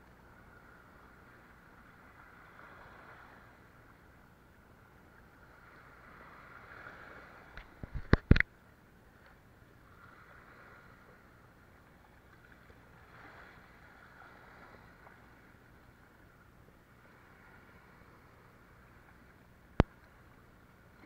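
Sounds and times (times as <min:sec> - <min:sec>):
sea water lapping: 0:00.2 - 0:08.4, 0:09.1 - 0:21.0
sharp clicks and knocks: 0:07.8 - 0:08.5.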